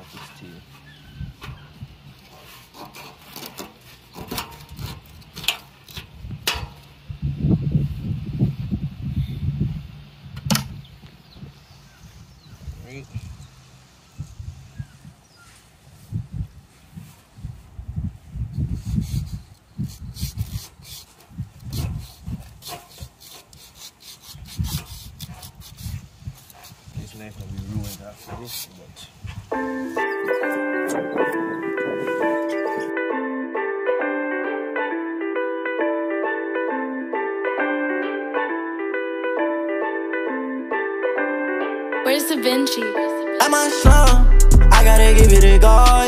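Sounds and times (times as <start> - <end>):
knife sawing through skin: 18.8 - 26.8, 27.7 - 28.8
dull low thumps: 43.9 - 46.0.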